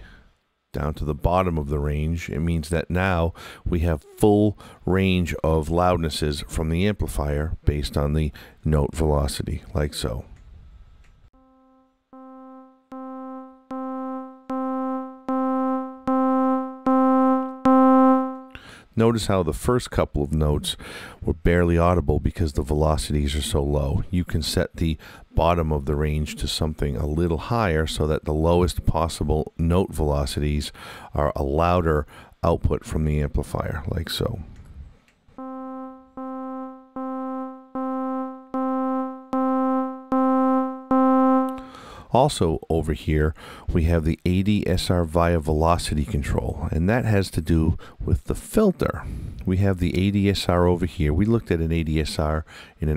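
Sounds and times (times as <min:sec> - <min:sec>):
synthesizer playing held notes: 0:11.4 - 0:18.6, 0:35.4 - 0:41.7.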